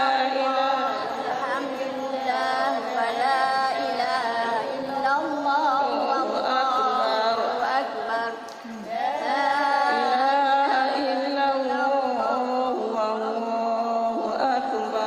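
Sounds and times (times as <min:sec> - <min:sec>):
women chanting in unison: 0:00.0 - 0:15.0.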